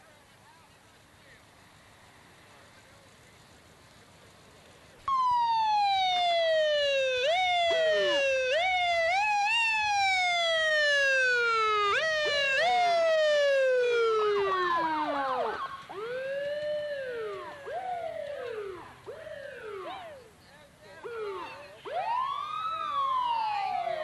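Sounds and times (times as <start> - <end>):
fire truck siren: 5.0 - 24.0.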